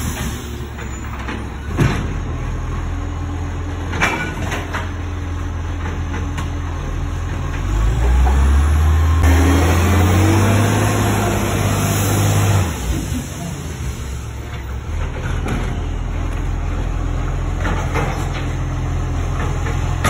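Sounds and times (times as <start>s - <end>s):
truck diesel engine revving: 6.6s - 20.0s.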